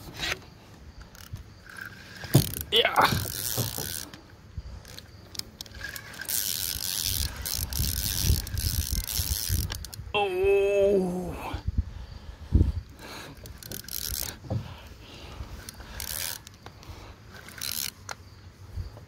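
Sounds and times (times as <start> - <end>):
fishing reel cranking: 1.0 - 4.2, 4.8 - 10.1, 13.4 - 14.4, 15.6 - 16.6, 17.3 - 18.2.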